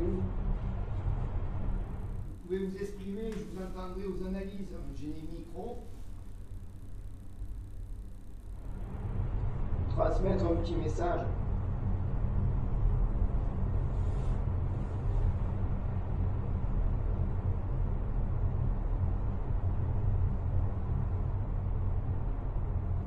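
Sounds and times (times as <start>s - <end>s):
faint hiss: 0.0s - 11.4s
low hum and rumble: 0.0s - 23.0s.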